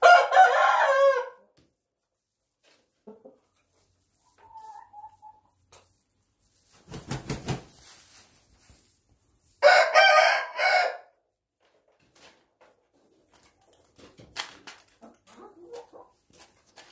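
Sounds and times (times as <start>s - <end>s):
rooster crowing: 0.0s - 1.4s, 9.6s - 11.1s
scuffling rustle: 7.6s - 9.1s.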